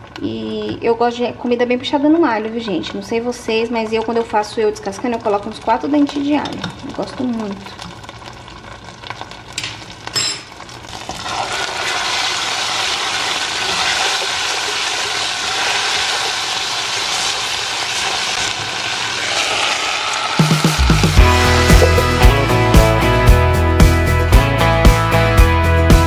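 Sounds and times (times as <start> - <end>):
garlic sizzling in oil: 2.2 - 22.2.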